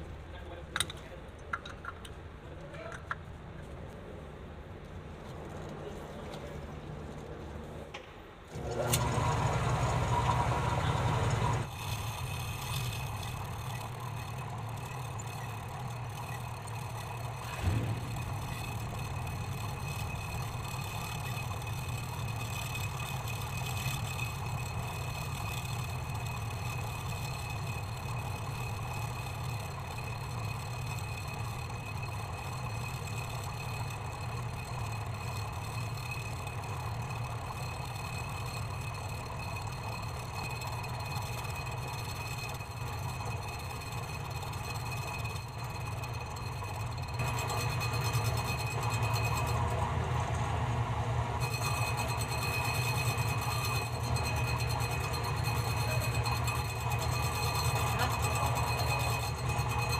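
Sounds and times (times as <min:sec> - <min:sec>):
lathe motor humming with whine: 0:08.5 - 0:59.9.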